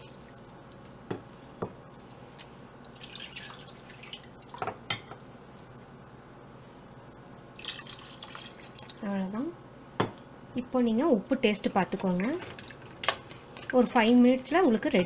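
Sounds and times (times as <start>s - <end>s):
liquid sloshing: 2.8s - 4.7s.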